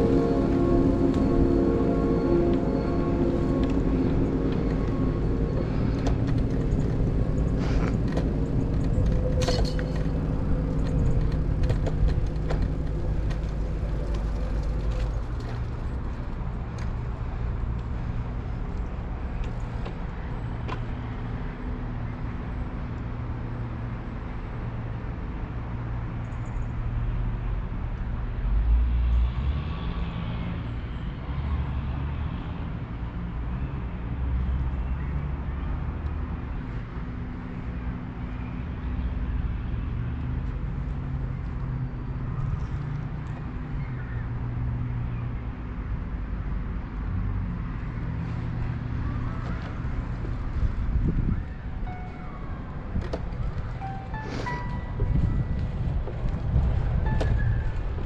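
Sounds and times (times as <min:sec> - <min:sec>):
steady hum: 0:00.0 - 0:15.4
bicycle rolling on trail: 0:00.0 - 0:18.0, 0:52.6 - 0:58.0
wind buffeting microphone: 0:49.0 - 0:58.0.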